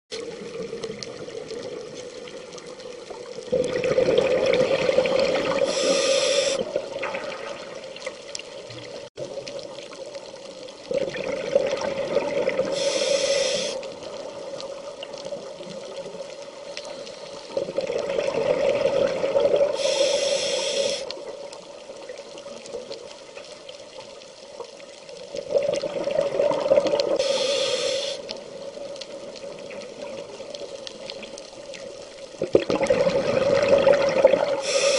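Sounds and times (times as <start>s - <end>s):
scuba regulator breathing bubbles: 3.4s - 7.4s, 10.9s - 14.0s, 16.6s - 21.2s, 25.4s - 28.5s, 32.5s - 34.9s.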